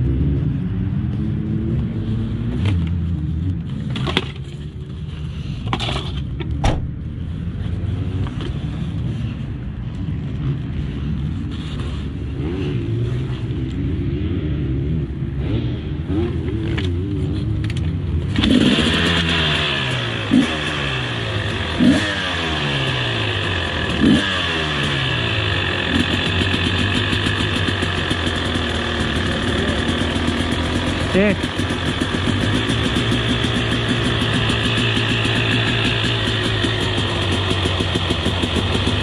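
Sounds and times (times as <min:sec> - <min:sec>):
motocross engine revving: 0:18.3 - 0:39.0.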